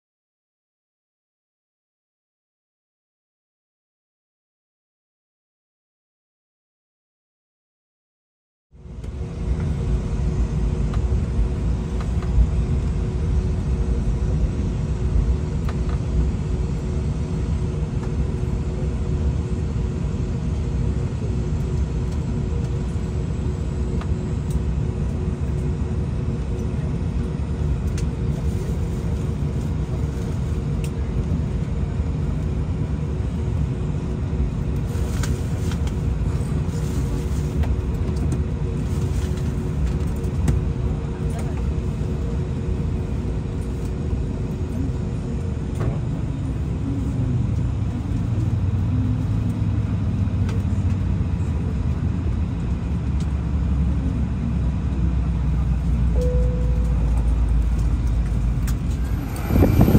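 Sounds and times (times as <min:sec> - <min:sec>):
constant hum: 0:08.8 - 0:59.9
jet engines idling rumble: 0:08.8 - 0:59.9.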